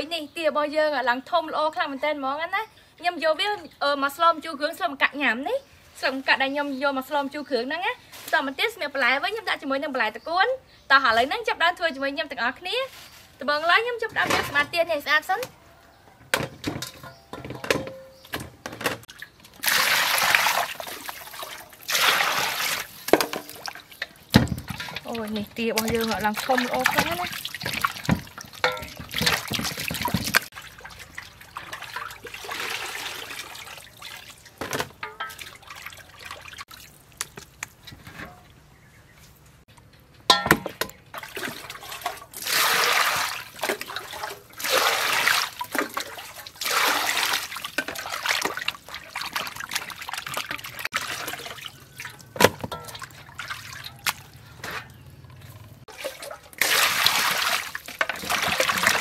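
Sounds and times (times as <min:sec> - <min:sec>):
water splashing in metal bowl: 0:19.1 - 0:38.0, 0:40.3 - 0:59.0.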